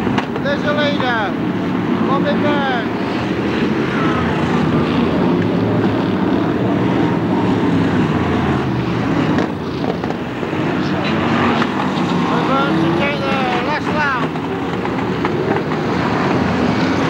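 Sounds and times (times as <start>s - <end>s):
stock car engines racing: 0.0s - 17.0s.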